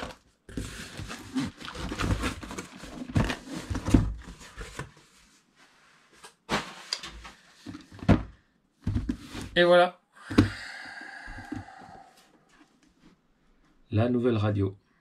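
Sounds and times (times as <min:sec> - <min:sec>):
packaging rustling: 0:00.0 - 0:04.8.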